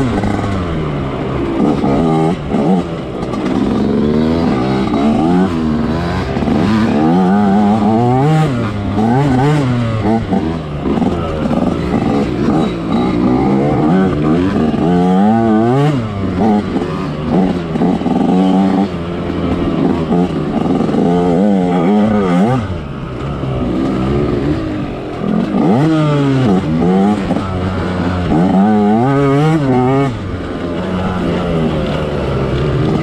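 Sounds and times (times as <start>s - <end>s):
dirt bike engine revving: 0.0s - 33.0s.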